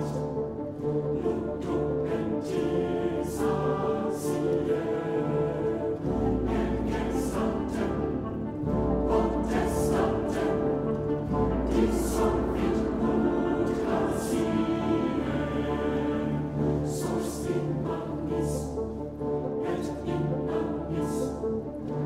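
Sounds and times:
choir singing: 0.0s - 22.0s
dramatic orchestral music: 0.0s - 22.0s.

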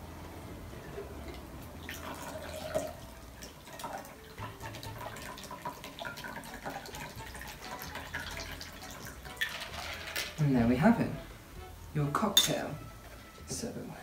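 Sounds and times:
liquid trickling and dripping: 0.8s - 10.4s.

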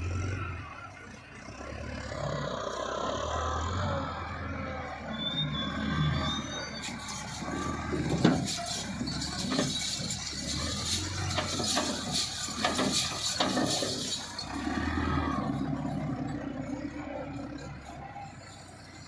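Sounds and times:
tractor engine running: 0.0s - 19.0s
soil clods pouring into trolley: 6.9s - 15.0s.

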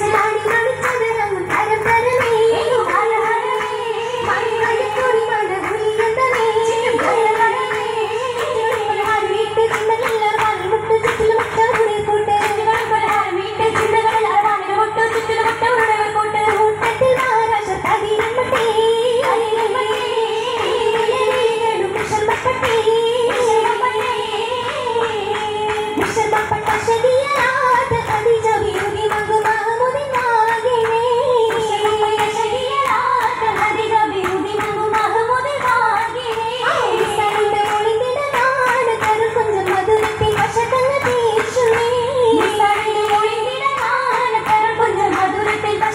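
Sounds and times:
rhythmic hand claps: 0.0s - 45.9s
women singing in unison: 0.0s - 45.9s.

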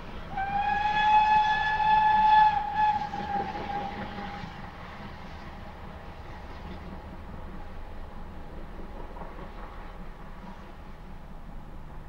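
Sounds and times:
steam whistle blast: 0.3s - 4.5s.

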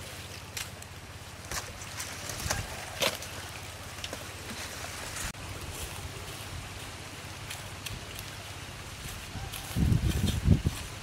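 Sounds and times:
wind on microphone: 8.8s - 11.0s.

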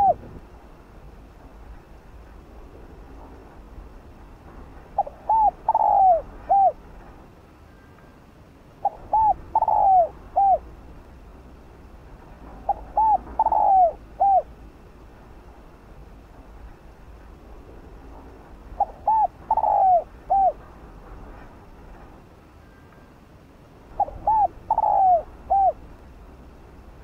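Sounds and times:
dove cooing: 0.0s - 0.3s, 5.0s - 6.8s, 8.8s - 10.7s, 12.6s - 14.6s, 18.8s - 20.6s, 23.9s - 25.9s.

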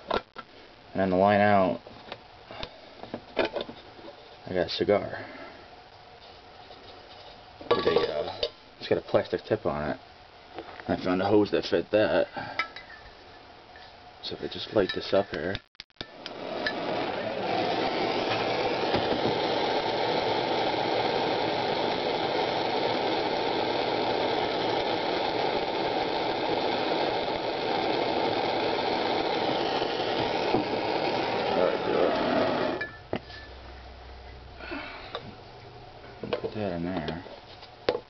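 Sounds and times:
gas torch hissing: 16.0s - 33.5s.

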